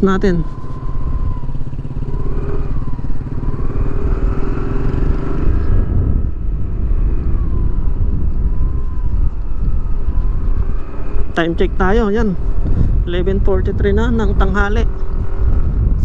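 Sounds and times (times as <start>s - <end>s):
faint engine whine: 0.0s - 16.0s
scooter engine rumble: 0.0s - 16.0s.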